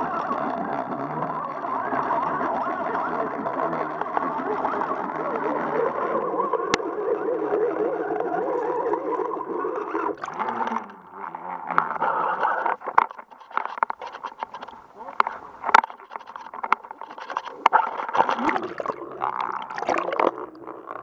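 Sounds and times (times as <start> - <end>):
muffled underwater water rush: 0.0 - 21.0
water splashes: 0.0 - 21.0.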